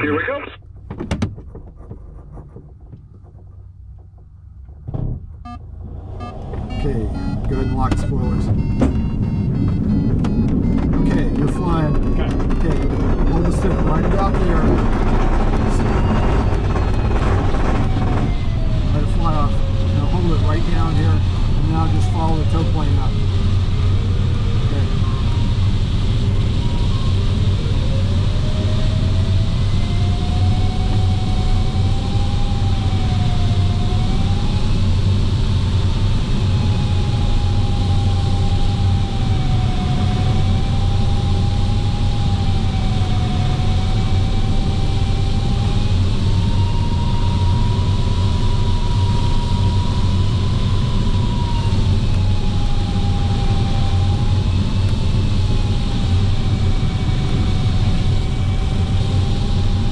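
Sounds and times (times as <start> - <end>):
low engine drone: 0.0 - 59.9
variometer audio tone: 5.4 - 28.7.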